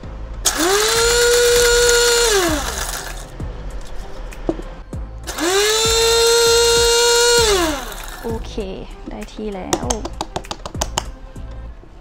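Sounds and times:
electric coffee grinder whining: 0.5 - 3.3, 5.3 - 8.4.

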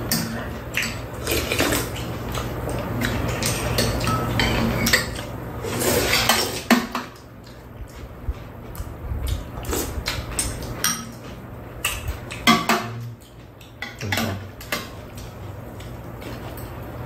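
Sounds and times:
chopsticks and spoons clinking bowls: 3.0 - 5.3, 10.4 - 15.0.

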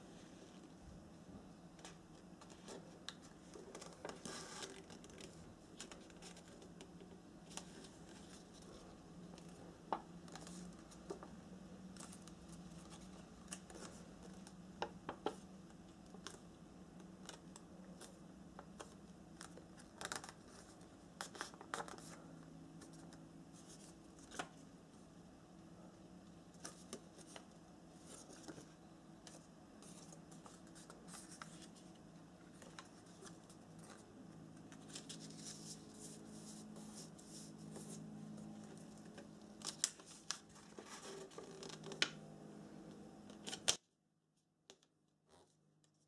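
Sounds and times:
low steady hum: 0.0 - 43.8
paper rustling and crinkling: 1.8 - 6.8, 32.5 - 38.0, 38.6 - 42.1.

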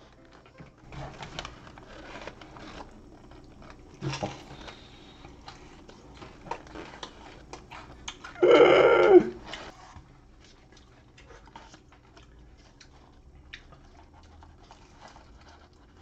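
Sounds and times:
biting and chewing food: 0.0 - 16.0
short loud vocal sound: 8.4 - 9.4.

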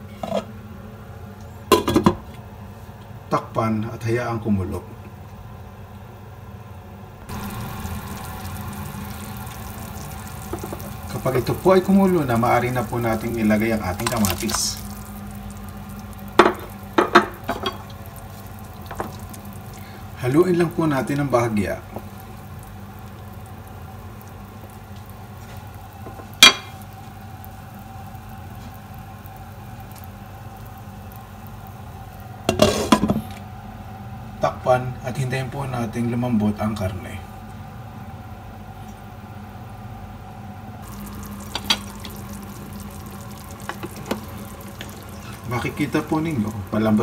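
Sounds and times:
faint even hum: 4.6 - 47.0
low hum: 7.2 - 17.0
broth bubbling in pot: 7.3 - 33.9, 40.8 - 47.0.

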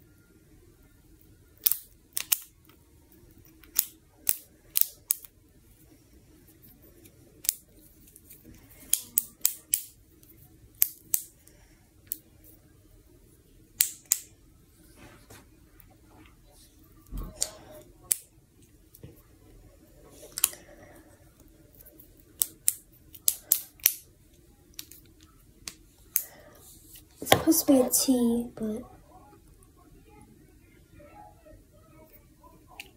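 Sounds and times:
plastic fidget toy clicking: 1.6 - 2.5, 3.6 - 5.3.

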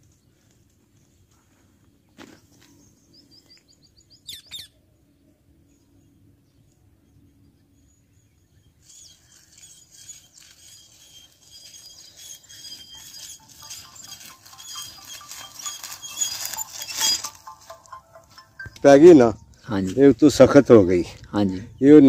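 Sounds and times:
hand tool scraping dry soil: 8.8 - 17.8
footsteps: 9.5 - 20.3.

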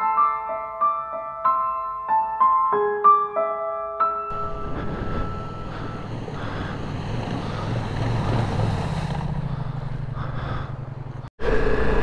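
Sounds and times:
wind noise: 4.3 - 8.9
motorcycle engine running: 5.6 - 12.0
water splashing: 5.7 - 10.0.

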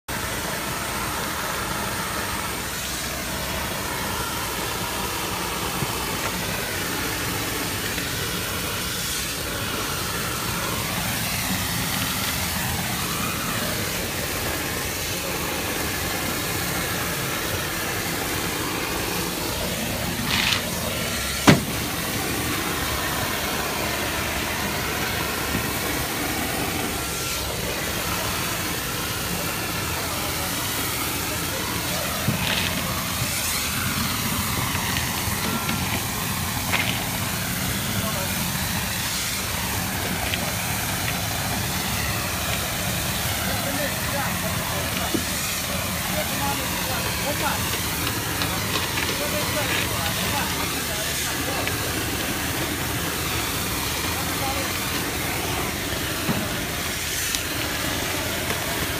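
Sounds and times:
compressed air hissing from hose: 0.1 - 58.9
machine drone: 0.1 - 58.9
sharp knock: 21.4 - 21.8.

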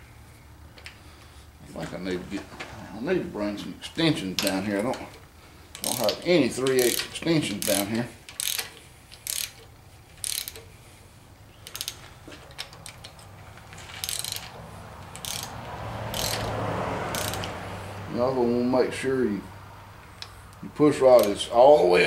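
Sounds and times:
socket ratchet clicking: 5.8 - 10.7, 11.6 - 13.4, 14.0 - 17.6.

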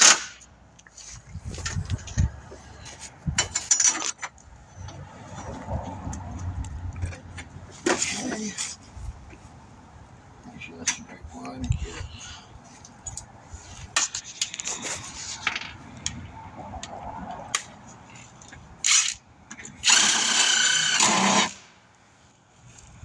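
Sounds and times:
power tool whining: 19.8 - 21.6.

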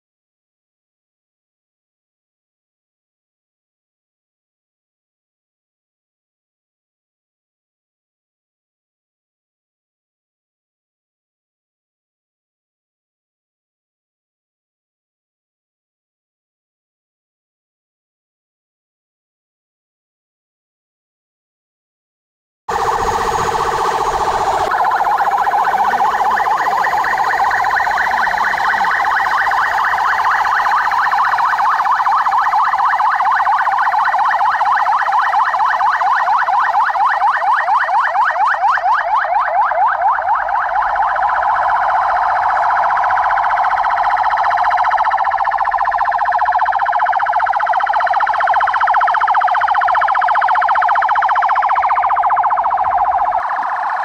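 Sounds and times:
police sirens wailing and yelping: 22.7 - 54.0.

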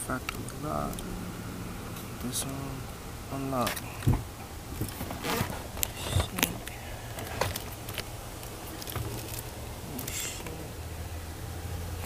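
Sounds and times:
steady low hum: 0.0 - 12.0
wiring clicks and rustles: 1.9 - 10.6.

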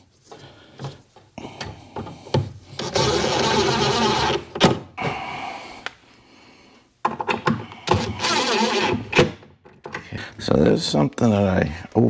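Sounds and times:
cordless driver spinning screw: 8.0 - 9.1.

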